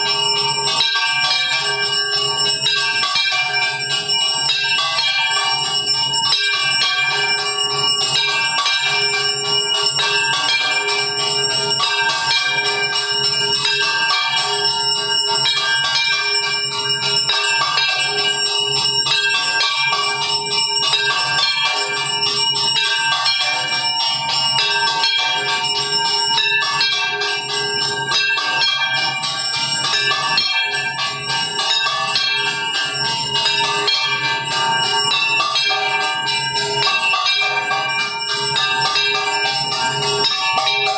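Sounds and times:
temple bells ringing rapidly: 0.0 - 40.9.

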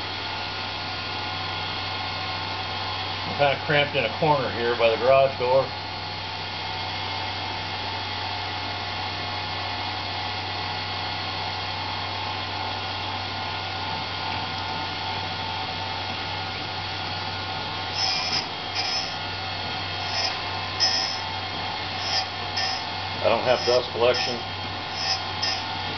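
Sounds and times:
grinder motor humming and whining: 15.3 - 25.9
grinding wheel scraping steel: 17.9 - 25.9.

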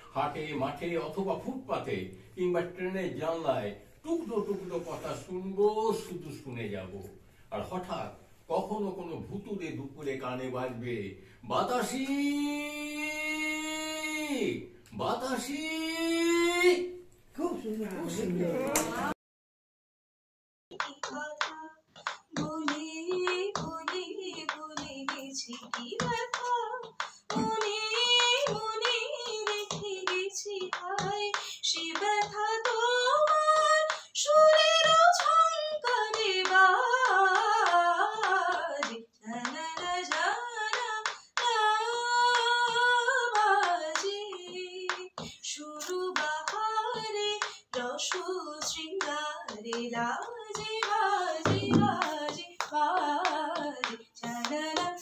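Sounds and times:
woman singing unaccompanied: 20.7 - 55.0
hand claps: 20.8 - 41.6, 43.4 - 55.0.

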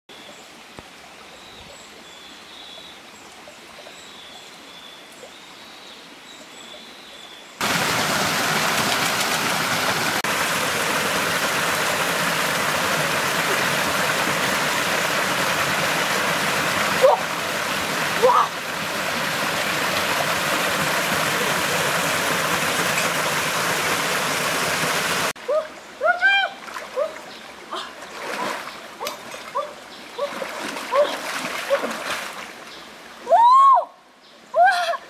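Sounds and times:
waterfall rushing into pool: 7.6 - 25.6.

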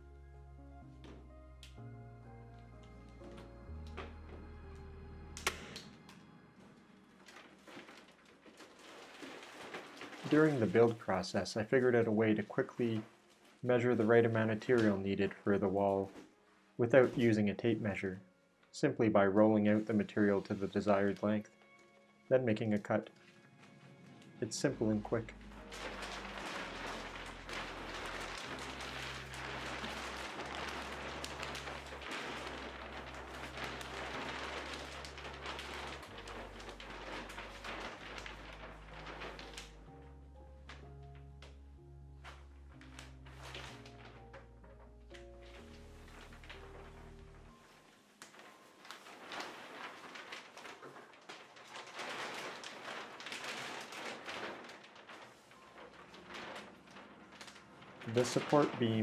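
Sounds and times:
slow bass line music: 0.0 - 6.9, 24.4 - 48.5
plastic film rustling and crinkling: 0.8 - 59.0.

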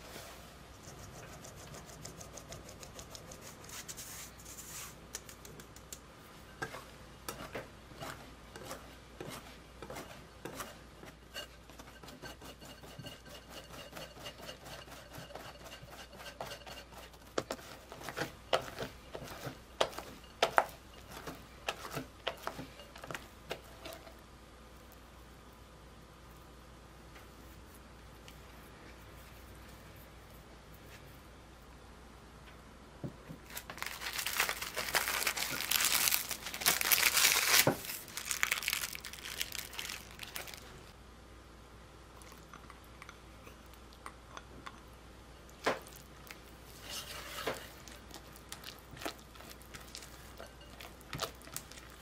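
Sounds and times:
flour sifting through sieve: 0.0 - 5.4, 6.3 - 24.0, 46.4 - 52.0
whisk scraping in glass bowl: 6.5 - 24.1, 46.7 - 47.9, 50.1 - 50.9.

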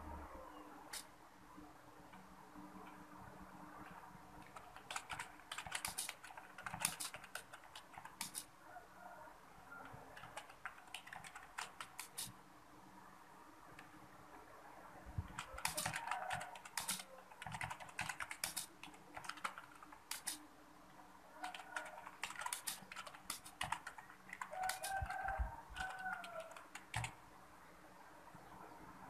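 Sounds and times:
keyboard typing clicks: 3.8 - 8.5, 9.8 - 12.3, 15.2 - 20.4, 21.4 - 27.2.

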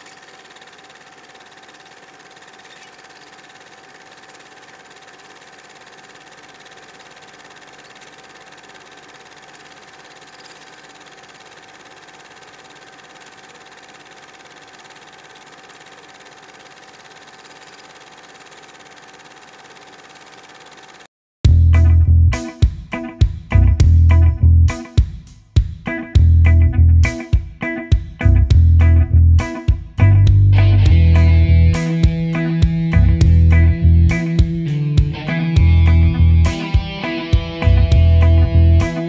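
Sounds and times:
film projector whirring: 0.0 - 21.1, 30.6 - 39.0.

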